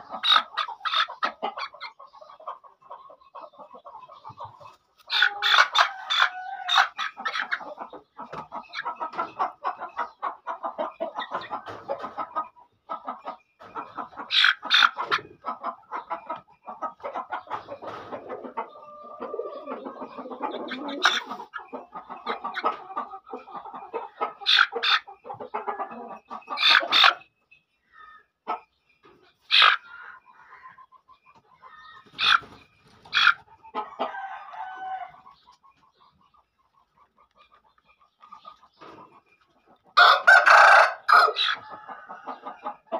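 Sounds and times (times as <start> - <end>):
chicken clucking: 0.0 - 42.9
sharp chicken calls: 0.0 - 42.9.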